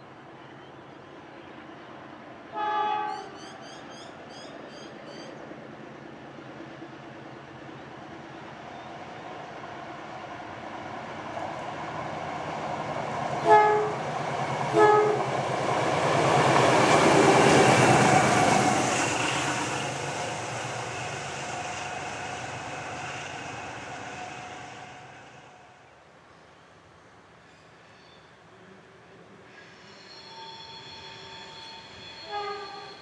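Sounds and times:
diesel locomotives passing: 0:00.0 - 0:33.0
locomotive horn blasts: 0:02.5 - 0:03.3, 0:13.4 - 0:14.0, 0:14.7 - 0:15.3, 0:30.3 - 0:33.0.

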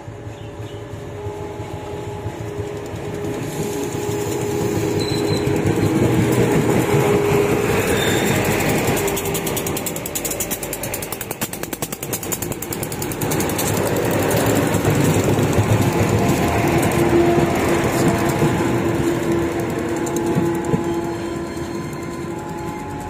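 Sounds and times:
train engine rattling clatter: 0:00.0 - 0:23.0.

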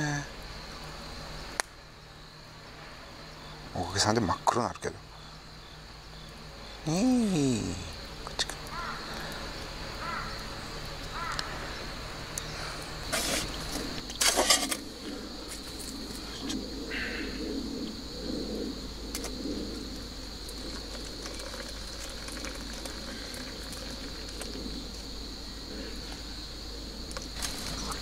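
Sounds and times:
high insect drone: 0:00.0 - 0:28.0
water pouring into metal cup: 0:20.6 - 0:24.4.

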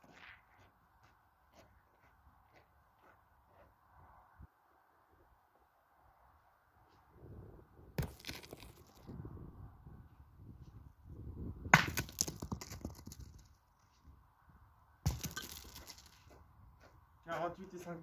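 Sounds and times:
boules rolling on ground: 0:08.0 - 0:09.3, 0:11.7 - 0:14.2, 0:15.0 - 0:16.4.

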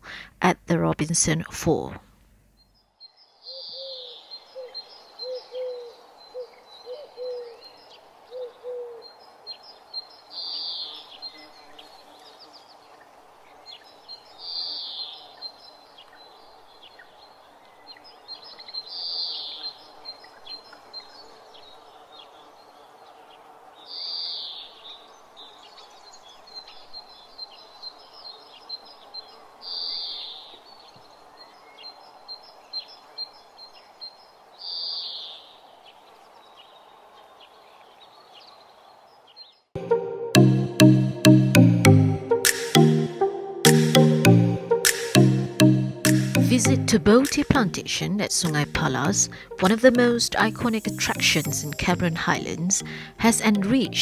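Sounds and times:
quick ticking bird notes: 0:46.0 - 0:49.8.

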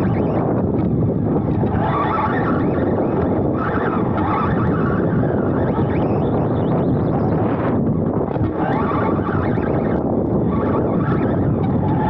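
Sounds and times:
electric motor and drivetrain whine: 0:00.0 - 0:12.0
wind buffeting microphone: 0:00.0 - 0:12.0.

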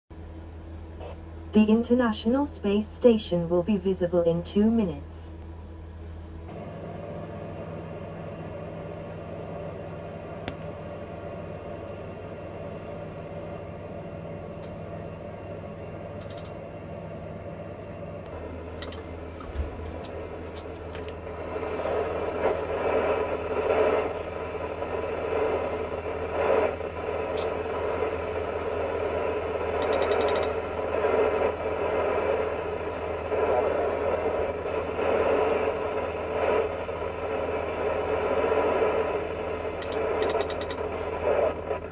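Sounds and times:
steady low hum: 0:00.1 - 0:41.9
radio static hiss: 0:01.0 - 0:05.4, 0:06.5 - 0:17.6, 0:18.2 - 0:41.9
tuning knob clicks: 0:16.2 - 0:16.6, 0:29.8 - 0:30.6, 0:39.8 - 0:40.9.

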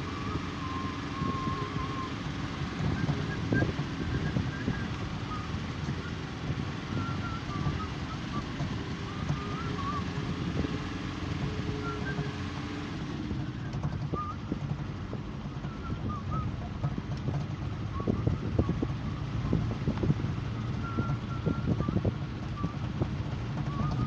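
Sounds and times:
vehicle engine and road rumble: 0:00.0 - 0:24.0
wind noise: 0:00.0 - 0:24.0.

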